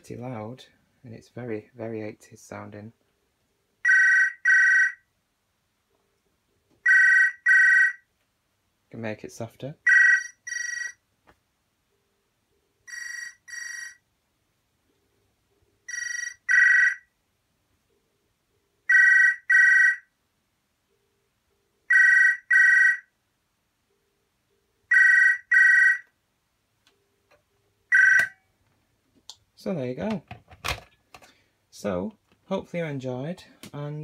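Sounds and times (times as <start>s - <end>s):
telephone electronic two-tone ringing: 6.8s - 8.0s, 9.9s - 11.0s, 12.9s - 14.0s, 15.9s - 17.0s, 18.9s - 20.0s, 21.9s - 23.0s, 24.9s - 26.0s, 27.9s - 28.4s.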